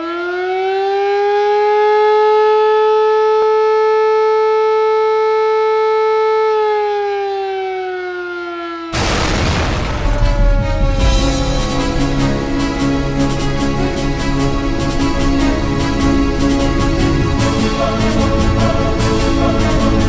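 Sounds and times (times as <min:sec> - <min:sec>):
air-raid siren: 0:00.0 - 0:20.0
loud boom: 0:09.0 - 0:13.9
music: 0:09.6 - 0:20.0.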